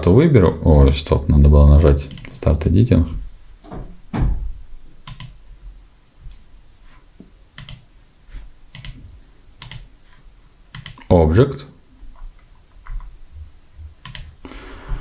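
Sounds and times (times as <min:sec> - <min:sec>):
low soft thump: 0:03.7 - 0:04.6
mouse and keyboard clicks: 0:05.0 - 0:05.4, 0:07.6 - 0:07.8, 0:08.7 - 0:09.0, 0:09.6 - 0:09.9, 0:10.7 - 0:11.1, 0:14.0 - 0:14.3.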